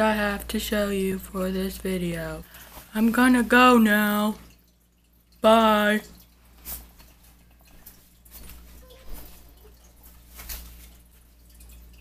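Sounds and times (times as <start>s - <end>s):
low room hum: 0.0s - 12.0s
faint taps and rustles: 6.6s - 11.0s.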